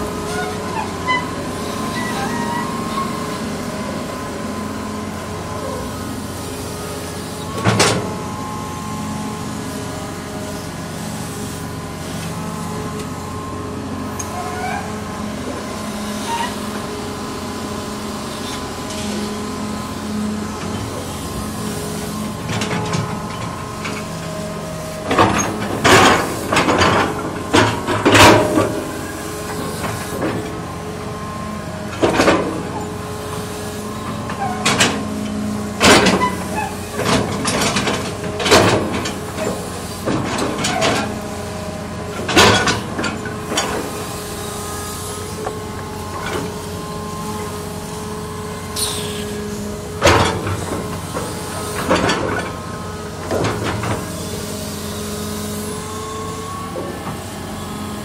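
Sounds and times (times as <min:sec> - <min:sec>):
excavator bucket scraping and clunking: 0:00.0 - 0:05.5, 0:07.4 - 0:08.3, 0:18.3 - 0:58.0
excavator diesel engine: 0:00.0 - 0:58.0.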